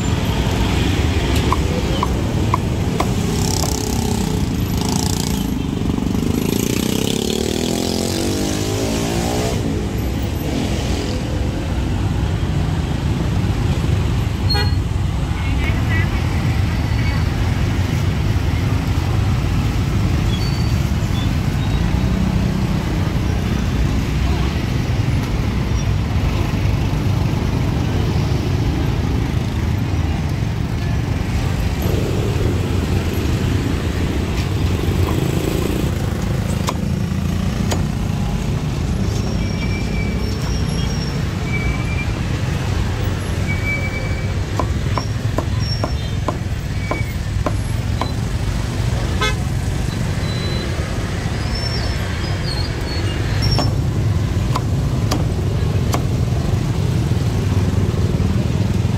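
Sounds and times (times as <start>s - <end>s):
street traffic rumble: 0.0s - 58.9s
sharp knocks: 44.4s - 48.2s.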